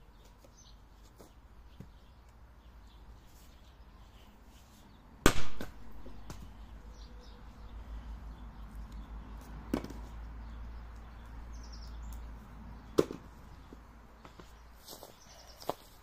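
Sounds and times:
bird chirping: 6.0s - 9.5s, 10.1s - 16.0s.

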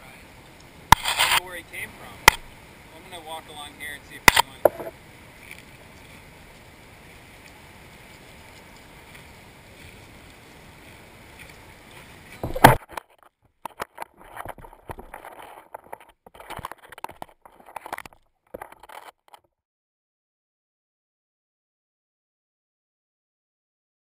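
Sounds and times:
gentle waves: 0.1s - 19.1s.

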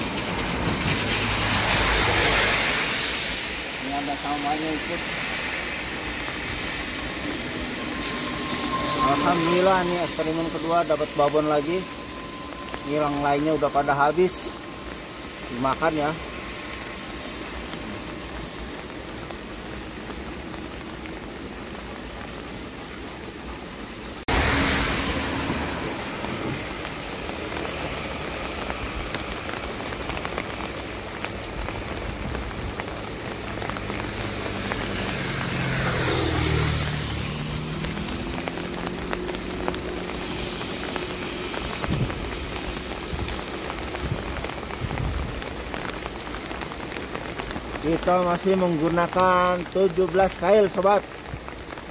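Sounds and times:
vehicle passing: 0.0s - 14.9s, 24.2s - 31.9s, 32.9s - 43.9s
steady rain: 0.0s - 51.9s.

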